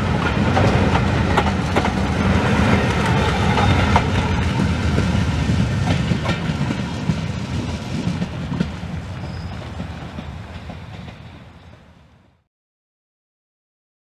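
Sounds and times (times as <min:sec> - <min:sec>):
train rolling over rail joints: 0:00.0 - 0:12.4
train wheel clicks: 0:00.1 - 0:11.3.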